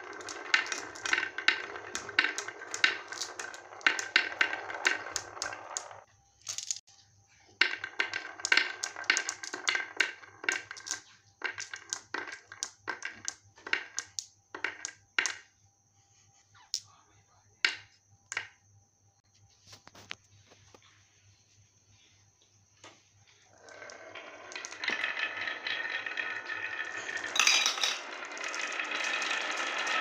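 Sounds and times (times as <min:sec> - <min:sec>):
marbles clacking together: 0:00.0 - 0:06.8, 0:07.6 - 0:15.5, 0:23.5 - 0:30.0
marbles rolling on wood: 0:00.0 - 0:06.8, 0:07.5 - 0:15.6, 0:17.6 - 0:18.6, 0:22.8 - 0:30.0.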